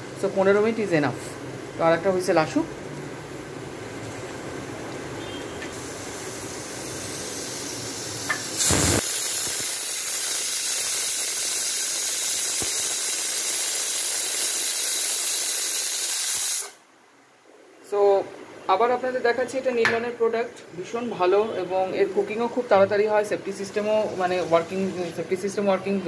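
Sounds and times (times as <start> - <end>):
pressure cooker whistling steam: 5.2 - 16.8.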